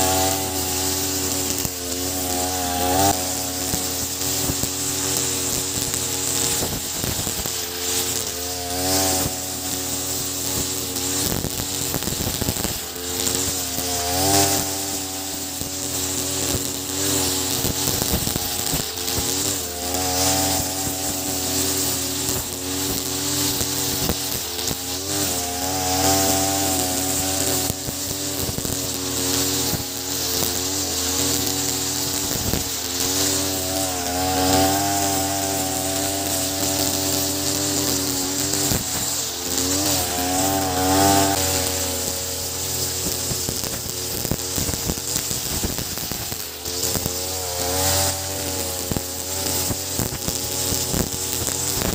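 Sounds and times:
brush cutter engine running: 0:00.0 - 0:51.9
nylon line cutting grass: 0:00.0 - 0:51.9.

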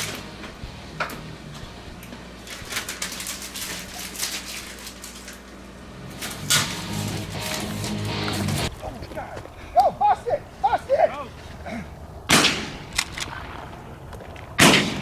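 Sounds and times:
low steady hum: 0:00.0 - 0:15.0
plastic bags crinkling: 0:02.5 - 0:05.6.

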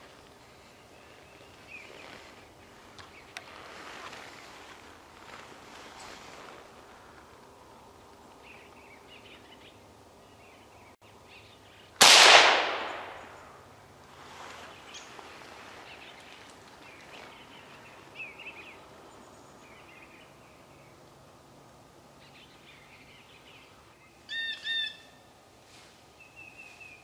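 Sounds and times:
small birds chirping: 0:00.0 - 0:06.4, 0:14.6 - 0:21.1, 0:22.1 - 0:25.2
rifle shot with echo: 0:12.0 - 0:13.6.

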